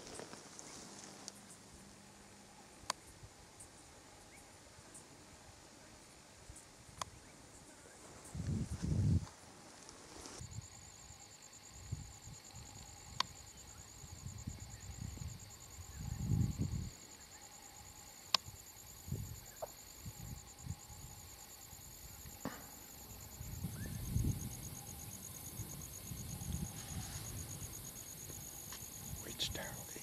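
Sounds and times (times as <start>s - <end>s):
insect trilling: 10.4s - 30.0s.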